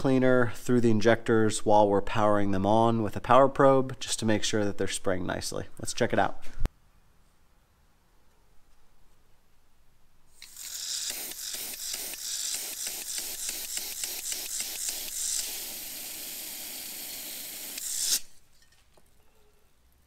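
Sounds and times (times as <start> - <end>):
aerosol spray hissing: 10.4 - 18.3.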